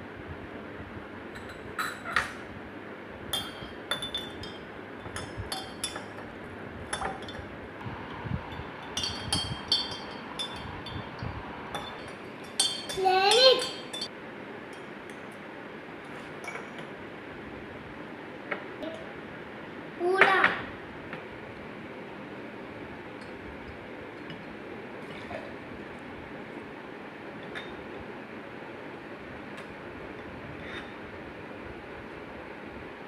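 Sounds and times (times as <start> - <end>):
spoon clinking in glass jar: 3.3 - 6.2, 8.5 - 14.1
child vocal sound: 13.0 - 13.7.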